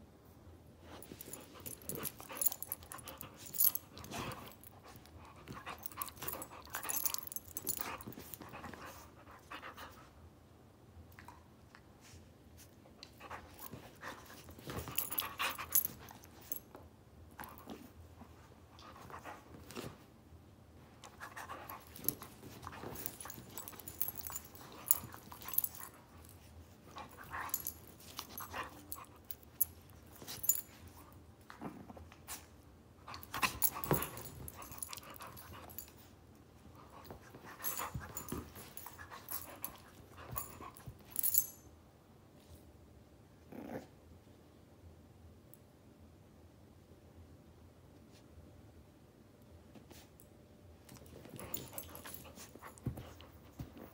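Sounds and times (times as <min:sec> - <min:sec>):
dogs scuffling: 0:21.2 - 0:31.0.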